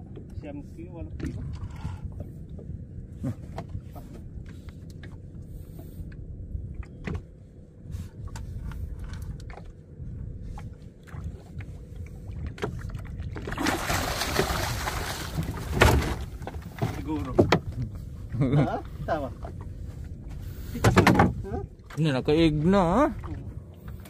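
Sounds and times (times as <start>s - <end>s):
steady low rumble: 0.0s - 24.0s
light knocks against boat: 1.2s - 7.4s, 15.3s - 18.0s, 20.7s - 22.0s
fish splashing at water surface: 13.5s - 16.2s.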